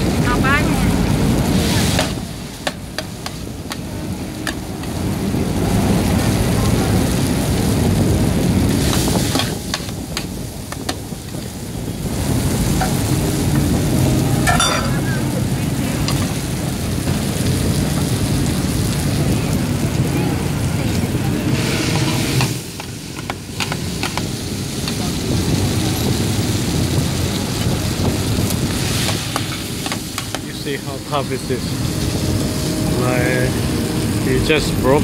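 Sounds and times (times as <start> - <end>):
food sizzling: 0.0 - 35.0
metal spatulas scraping on hot plate: 14.5 - 15.0.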